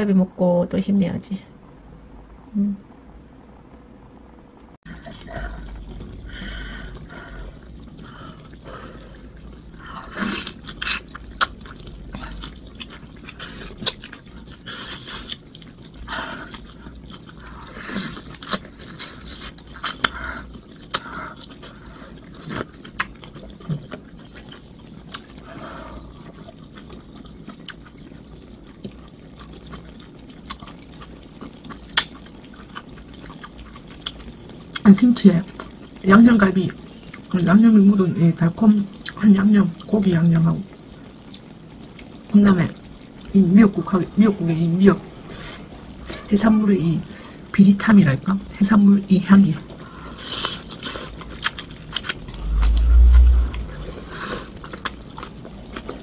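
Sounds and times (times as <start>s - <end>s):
wet slurping and chewing: 4.9s - 34.9s, 49.6s - 56.0s.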